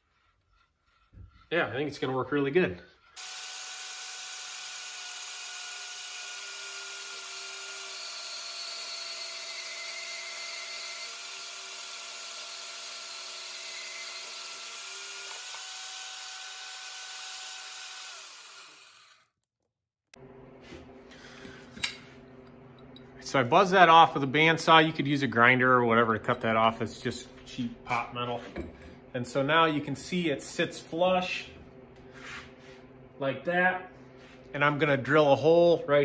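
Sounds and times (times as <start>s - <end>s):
band saw cutting metal: 2.7s - 19.4s.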